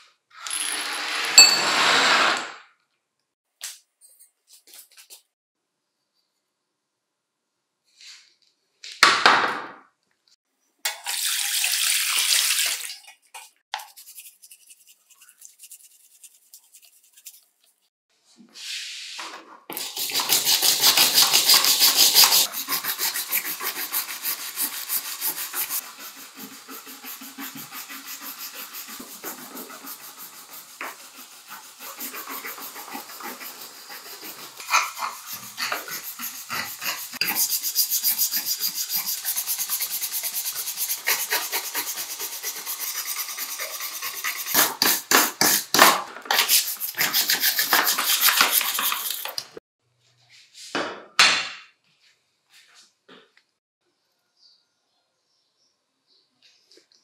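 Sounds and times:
hand brush scrubbing in water: 0:12.6 - 0:17.9, 0:18.6 - 0:45.7, 0:46.4 - 0:49.6.

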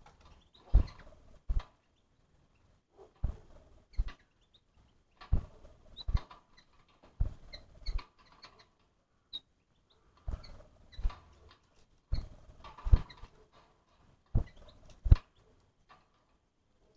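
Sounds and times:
soft knocks and rustling: 0:00.0 - 0:01.8, 0:03.0 - 0:04.3, 0:05.2 - 0:08.9, 0:10.2 - 0:16.5
high animal peeps: 0:00.0 - 0:06.8, 0:07.4 - 0:13.4, 0:14.3 - 0:15.6.

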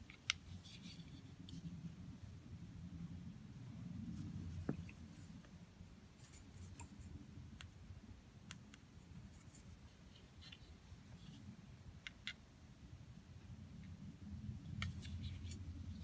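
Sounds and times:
low room hum: 0:00.0 - 0:16.0.

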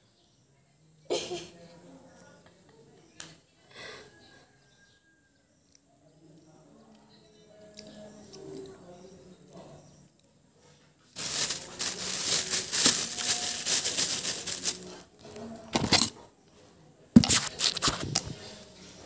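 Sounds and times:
plastic bags crinkling: 0:11.2 - 0:15.1, 0:15.7 - 0:16.1, 0:17.2 - 0:18.2.

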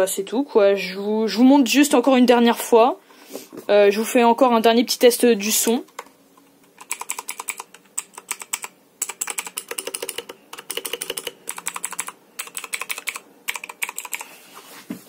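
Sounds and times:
mechanical keyboard typing: 0:06.7 - 0:14.3.

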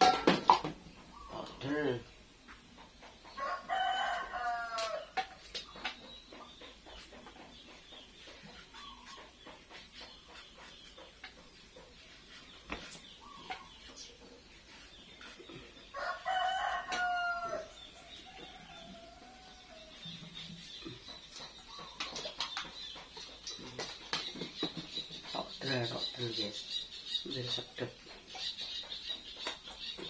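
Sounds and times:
rooster crowing: 0:03.4 - 0:05.1, 0:15.9 - 0:17.7.

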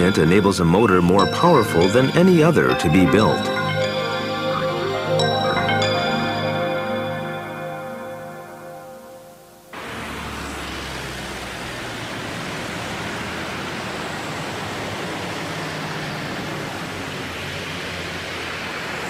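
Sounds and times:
background music: 0:00.0 - 0:09.8
city street traffic: 0:09.8 - 0:19.0.

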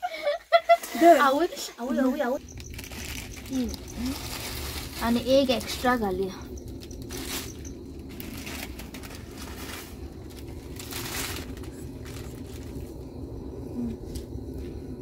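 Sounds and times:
plastic packets crinkling: 0:02.4 - 0:12.9.

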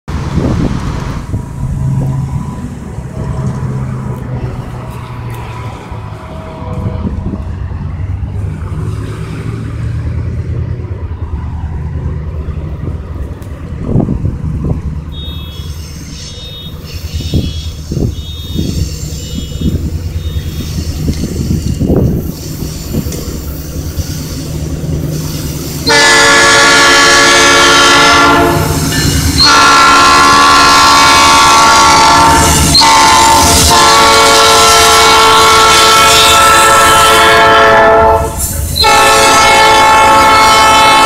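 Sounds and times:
highway traffic passing: 0:00.1 - 0:41.0
pulsing high beeping: 0:15.1 - 0:21.0.

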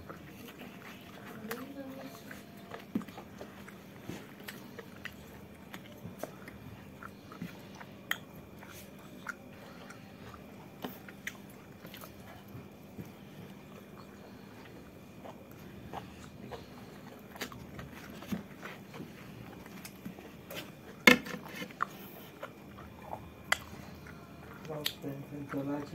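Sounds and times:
faint steady hum: 0:00.0 - 0:25.9
person chewing food: 0:00.0 - 0:25.9
wet mouth clicks and smacks: 0:07.4 - 0:08.4.

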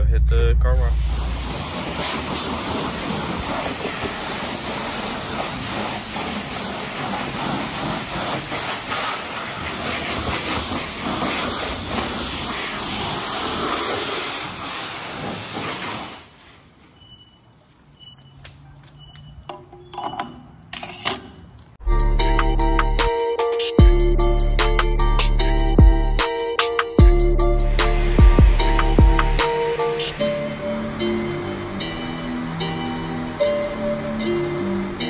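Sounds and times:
pressure washer spraying water: 0:00.8 - 0:18.4, 0:27.0 - 0:30.4.

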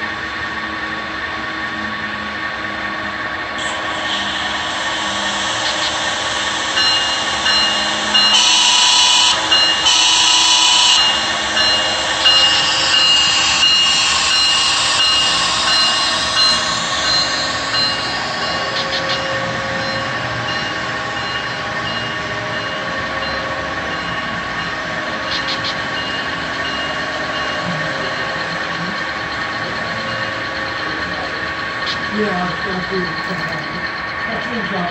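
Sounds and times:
motor whine changing pitch: 0:01.9 - 0:34.9
model train horn blasts: 0:06.8 - 0:15.2.

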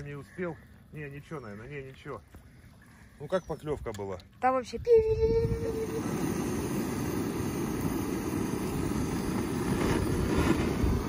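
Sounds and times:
gas torch roaring: 0:05.4 - 0:11.0.

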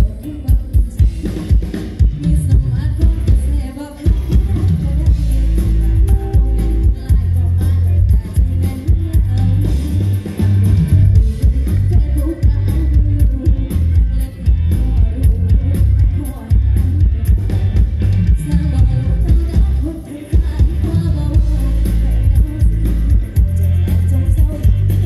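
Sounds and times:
live band music through pa: 0:00.0 - 0:25.0
woman singing: 0:00.0 - 0:25.0.

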